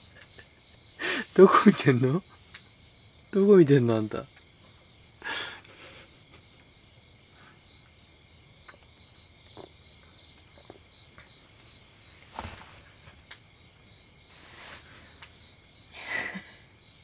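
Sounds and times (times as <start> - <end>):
crickets chirping: 0.0 - 17.0
night insects trilling: 0.0 - 17.0.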